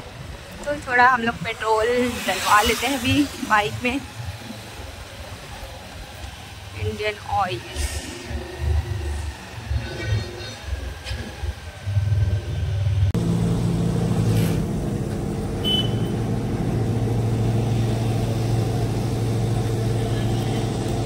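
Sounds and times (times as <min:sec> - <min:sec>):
low rumbling: 0:00.0 - 0:21.0
fuel pump motor humming: 0:13.2 - 0:21.0.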